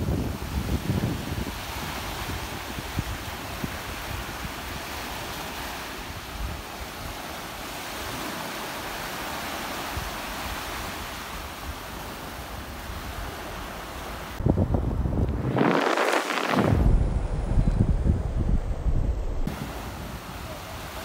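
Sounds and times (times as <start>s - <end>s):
wind buffeting microphone: 0.0s - 7.2s, 14.2s - 21.0s
small waves breaking on shore: 0.0s - 14.4s, 15.0s - 17.0s, 19.4s - 21.0s.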